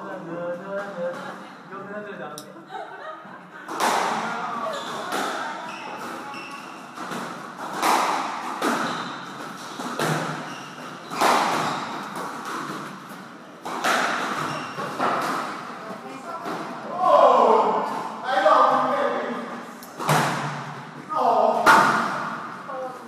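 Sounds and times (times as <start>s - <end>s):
squash ball hitting rackets and walls: 3.7s - 16.9s, 19.9s - 21.0s, 21.6s - 22.6s
shoes squeaking on wooden floor: 4.4s - 7.3s, 8.6s - 12.9s, 14.2s - 15.3s.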